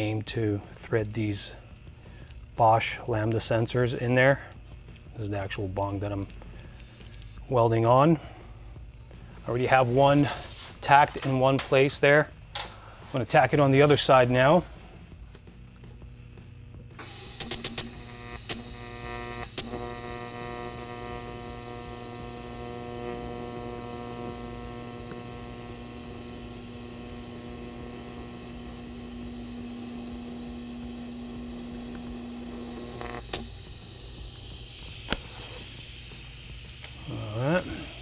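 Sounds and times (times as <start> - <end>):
welding arc buzzing: 16.6 - 38.0.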